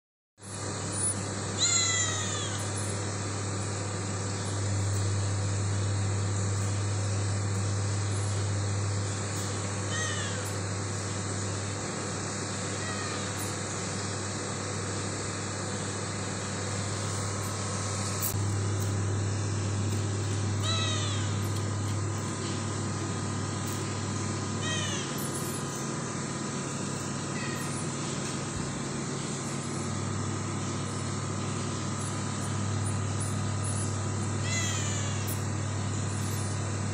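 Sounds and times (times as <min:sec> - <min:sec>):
steady low hum: 0:00.4 - 0:36.9
cat meowing: 0:01.6 - 0:02.7, 0:12.8 - 0:13.3, 0:27.4 - 0:27.8, 0:34.4 - 0:35.4.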